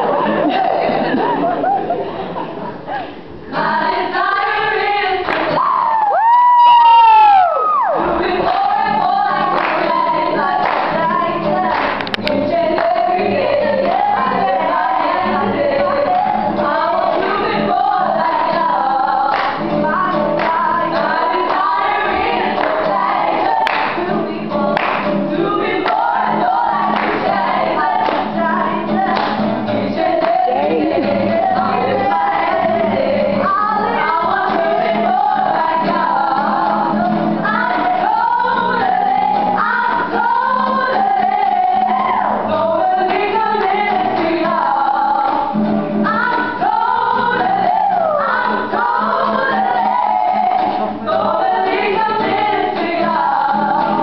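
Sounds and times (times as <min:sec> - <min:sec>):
acoustic guitar: 0:00.0 - 0:54.0
women singing in harmony: 0:03.5 - 0:54.0.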